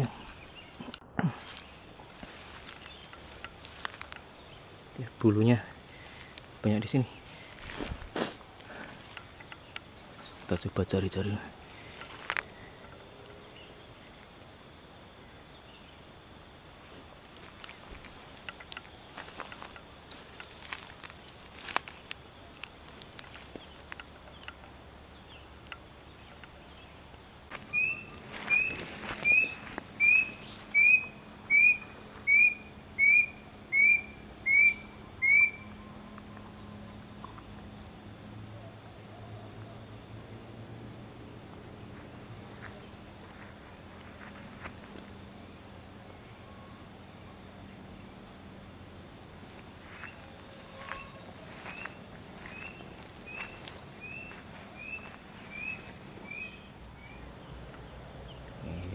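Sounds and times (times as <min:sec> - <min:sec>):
high-pitched insect drone: 0:00.0 - 0:58.9
footsteps on dry grass: 0:01.3 - 0:04.8, 0:05.8 - 0:06.6, 0:07.2 - 0:09.4, 0:11.7 - 0:12.5, 0:16.7 - 0:24.0, 0:27.5 - 0:30.8, 0:41.9 - 0:45.1, 0:49.6 - 0:56.2
bird whistling rising notes: 0:27.7 - 0:35.7.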